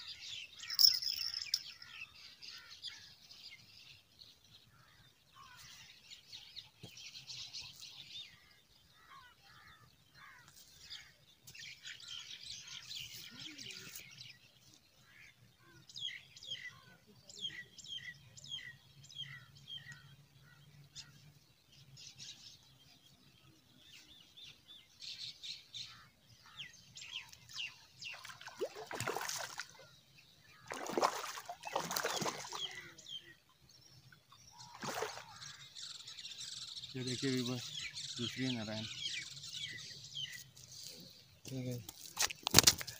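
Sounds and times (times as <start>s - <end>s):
birds chirping: 0.0s - 42.9s
fish splashing: 28.1s - 29.8s, 30.6s - 32.8s, 34.6s - 35.5s.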